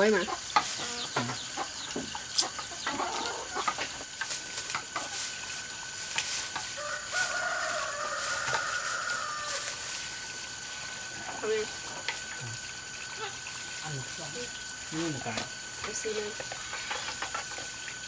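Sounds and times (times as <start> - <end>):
rooster crowing: 6.7 - 9.9.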